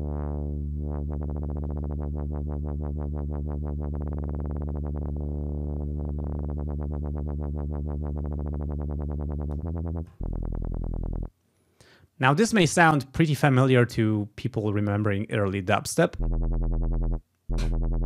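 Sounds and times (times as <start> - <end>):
synthesizer bass wobble: 0.0 - 11.3, 16.2 - 18.0.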